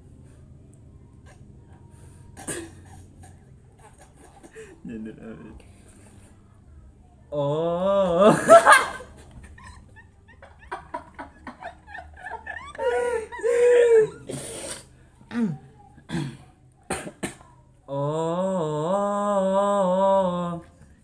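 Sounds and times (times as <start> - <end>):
young men laughing: 7.9 - 14.5
person humming a chant-like phrase: 17.9 - 20.8.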